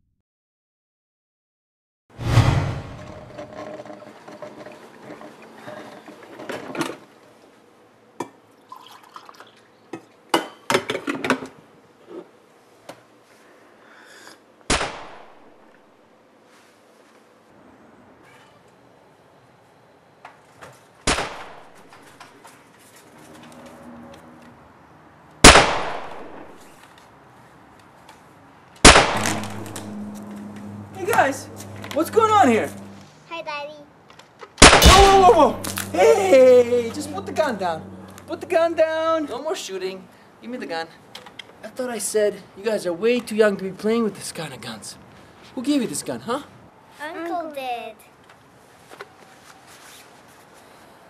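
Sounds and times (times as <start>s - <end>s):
coffee pouring into mug: 8.6s - 9.6s
gunshot bangs echoing: 25.4s - 26.6s, 28.8s - 30.1s, 34.6s - 36.0s.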